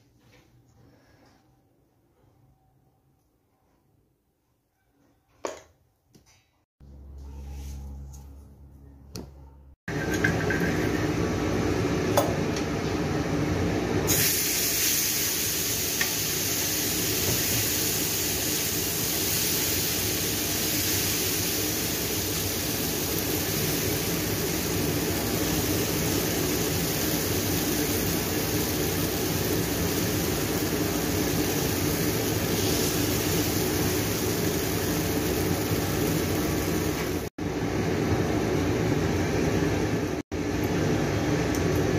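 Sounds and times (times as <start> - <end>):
batter sizzling on hot pan: 14.1 - 37.3.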